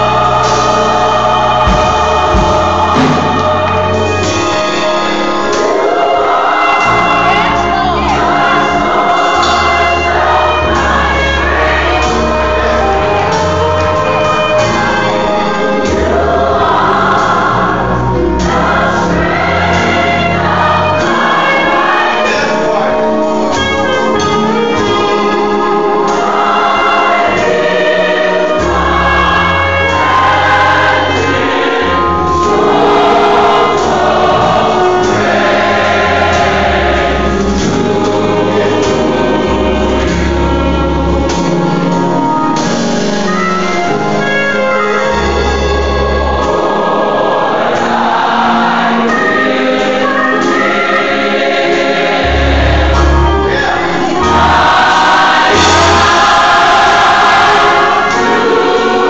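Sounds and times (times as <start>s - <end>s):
gospel choir singing: 0.0s - 59.0s.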